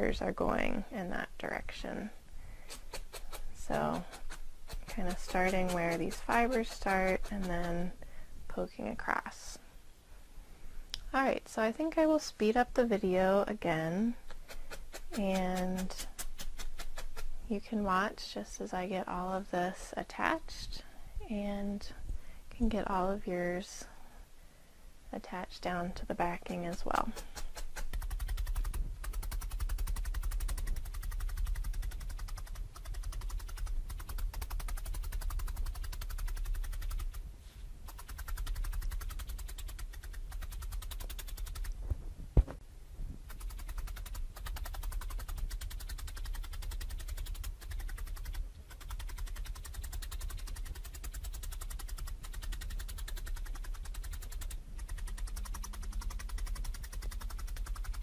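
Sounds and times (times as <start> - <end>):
felting needle stabbing foam: 2.6 - 7.9, 14.2 - 17.4, 26.3 - 37.2, 37.8 - 41.8, 43.2 - 58.0.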